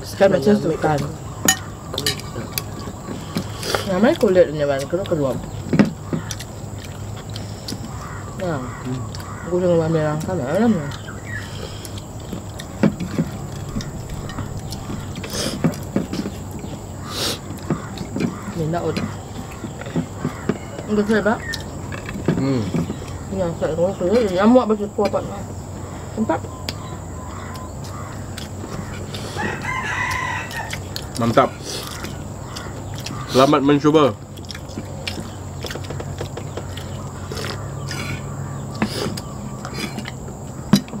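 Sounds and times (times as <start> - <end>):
harsh bird calls: 0.0 - 41.0
steady low hum: 0.0 - 41.0
chewing: 0.6 - 23.4, 24.1 - 41.0
fingers and utensils on plates: 0.8 - 8.2, 11.6 - 23.2.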